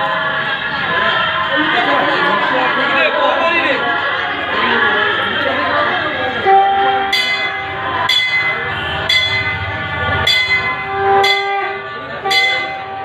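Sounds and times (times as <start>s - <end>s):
held horn-like tone: 4.6s - 13.0s
bell strikes: 7.0s - 13.0s.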